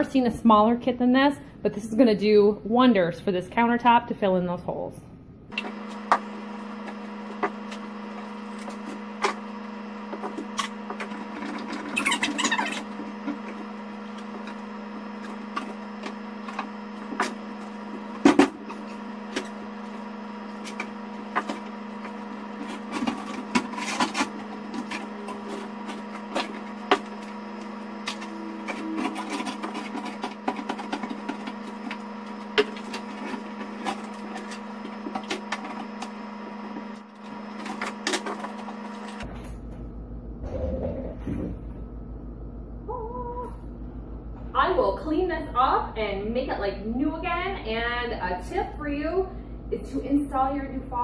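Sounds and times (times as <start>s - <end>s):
steady low hum: 12.7s - 51.0s.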